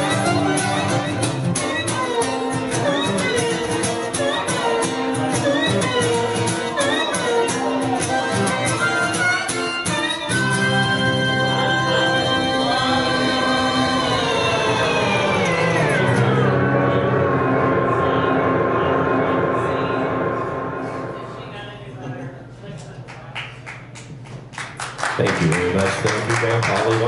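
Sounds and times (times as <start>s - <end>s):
harmonica solo: 0.0s - 21.1s
strummed acoustic guitar: 0.0s - 21.2s.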